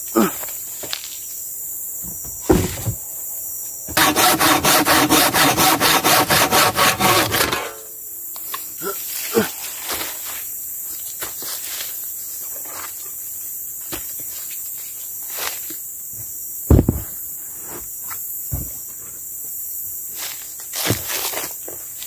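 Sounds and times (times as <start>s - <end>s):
insects droning: 0.0s - 22.0s
logs thudding together: 2.0s - 3.1s, 6.5s - 7.8s, 16.7s - 17.2s.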